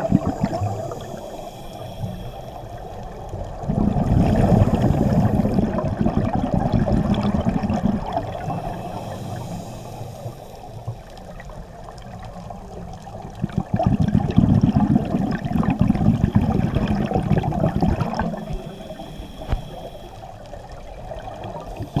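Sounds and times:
scuba regulator bubbling underwater: 0.0s - 2.2s, 2.8s - 20.1s.

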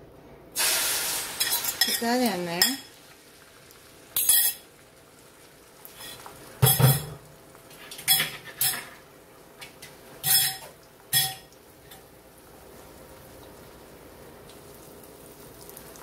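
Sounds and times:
eggs frying hiss: 0.6s - 16.0s
utensils and dishes clattering: 1.4s - 2.9s, 4.2s - 4.7s, 6.0s - 7.2s, 7.8s - 9.0s, 9.8s - 12.1s.

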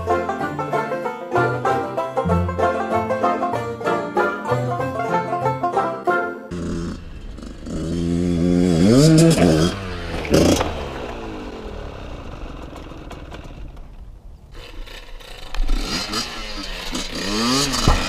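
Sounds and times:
dirt bike engine revving: 6.5s - 18.0s.

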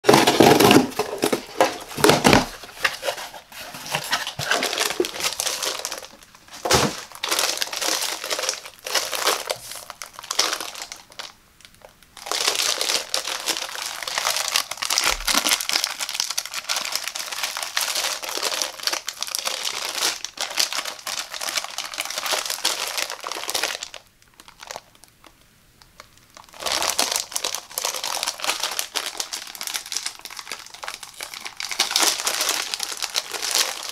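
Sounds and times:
plastic bag crinkling: 0.0s - 25.3s, 25.9s - 33.9s
cardboard box opening: 0.1s - 5.7s, 6.5s - 7.1s.

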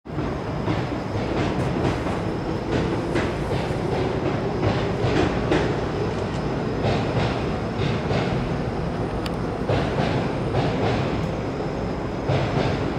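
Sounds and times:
train rumbling past: 0.1s - 12.9s
train wheels clacking: 0.1s - 12.9s.

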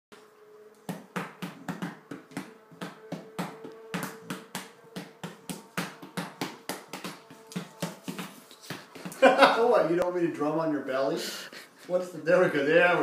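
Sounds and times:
hands patting dog's belly: 0.8s - 9.2s.

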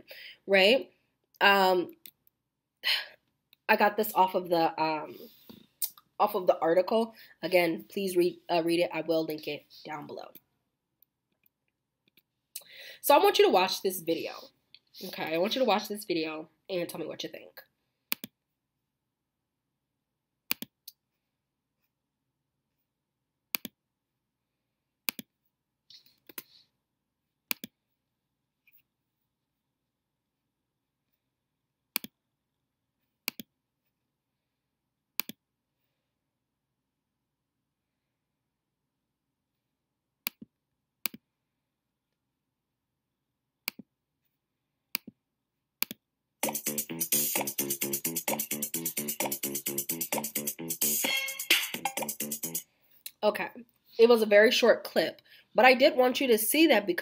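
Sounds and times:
computer mouse clicking: 18.1s - 18.4s, 20.5s - 21.0s, 23.6s - 23.8s, 25.1s - 25.3s, 27.5s - 27.7s, 33.3s - 33.5s, 35.2s - 35.4s
music: 46.4s - 52.6s.

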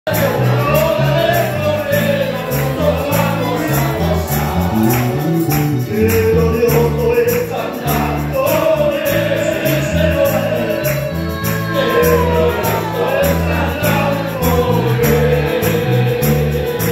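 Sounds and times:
congregation singing a hymn: 0.1s - 16.9s
tambourine jingle: 0.1s - 16.9s
walking bass line: 0.1s - 16.9s.

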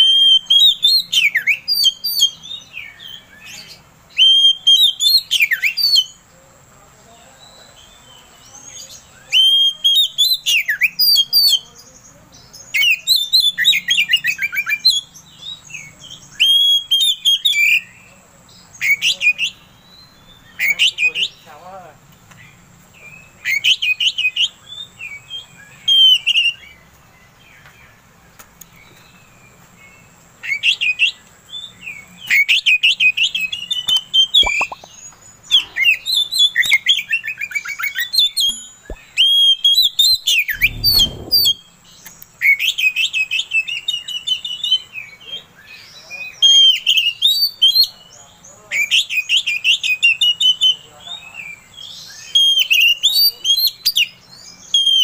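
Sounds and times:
bird singing whistles and trills: 0.0s - 6.2s, 8.9s - 11.7s, 12.6s - 18.0s, 23.1s - 26.8s, 28.7s - 48.1s, 51.6s - 55.0s
short low thump: 40.5s - 41.6s.

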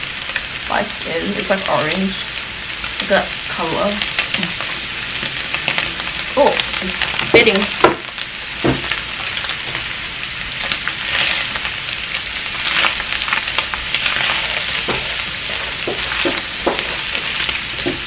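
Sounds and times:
meat sizzling in a frying pan: 0.0s - 18.0s
spoon knocking and scraping pan: 14.1s - 18.0s.

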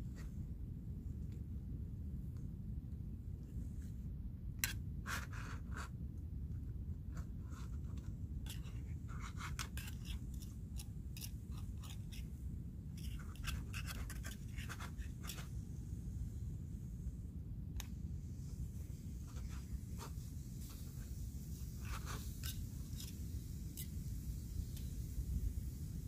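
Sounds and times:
steady low rumble: 0.0s - 26.0s
utensil scraping a metal pot: 8.4s - 12.3s, 21.7s - 23.9s.

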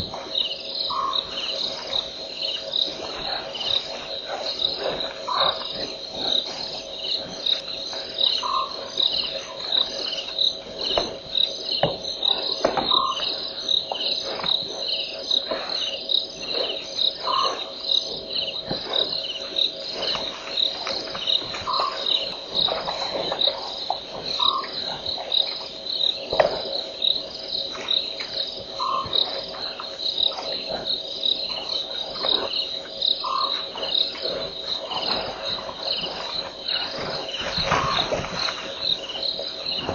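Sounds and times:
crickets chirping: 0.0s - 39.9s
short low frog call: 0.9s - 2.1s, 5.2s - 5.7s, 8.2s - 8.9s, 33.2s - 33.7s.

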